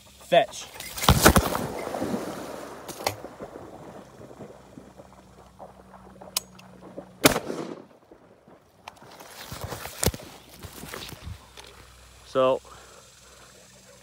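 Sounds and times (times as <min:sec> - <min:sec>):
shotgun shot with echo: 0:07.2 - 0:07.9.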